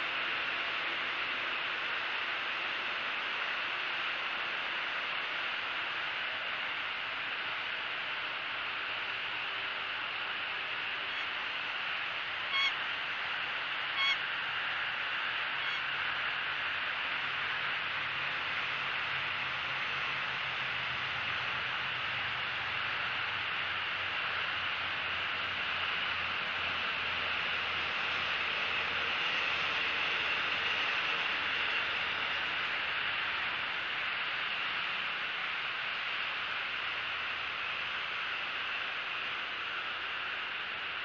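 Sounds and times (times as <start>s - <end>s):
background hiss: 0.0s - 41.0s
high bird calls: 12.5s - 12.8s, 14.0s - 14.3s, 15.6s - 15.9s.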